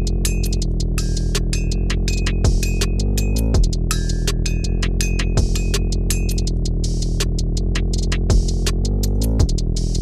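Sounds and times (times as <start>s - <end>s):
hi-hat ticks: 0.0s - 10.0s
deep kick drum hits: 5.4s - 5.6s, 8.3s - 8.6s.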